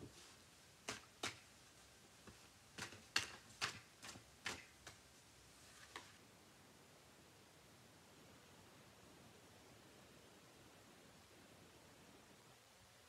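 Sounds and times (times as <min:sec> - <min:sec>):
cards clicking and tapping: 0:00.9 - 0:01.4, 0:02.8 - 0:05.0.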